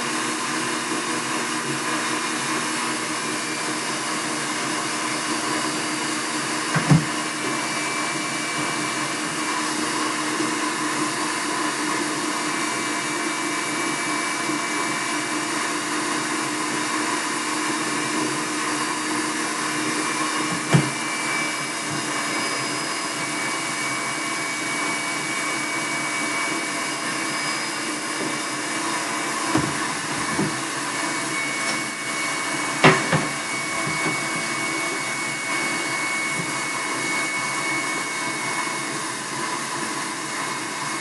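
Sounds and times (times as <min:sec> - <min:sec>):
electric stand mixer running: 0:00.0 - 0:41.0.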